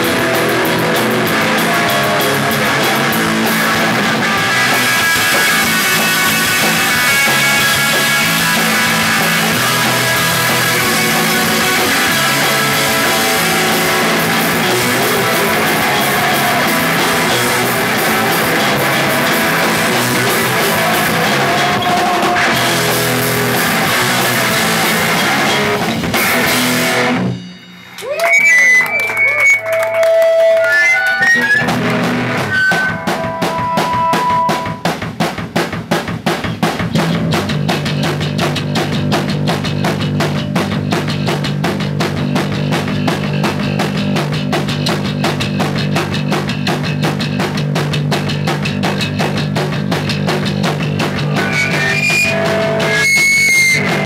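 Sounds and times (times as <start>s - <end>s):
electric guitar: 0.0s - 35.0s, 36.5s - 54.0s
drum kit: 0.0s - 54.0s.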